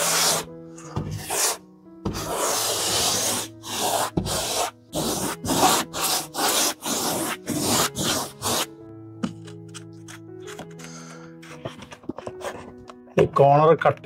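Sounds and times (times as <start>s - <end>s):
brush strokes spreading glue: 0.0s - 8.8s.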